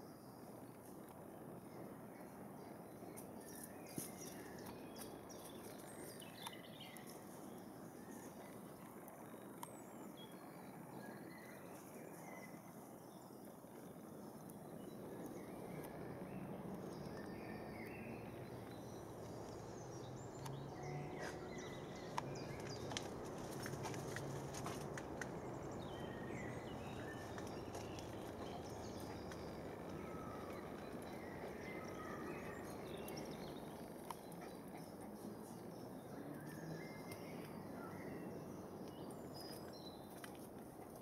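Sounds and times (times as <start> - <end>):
faint clicks: 13.7 - 35.3.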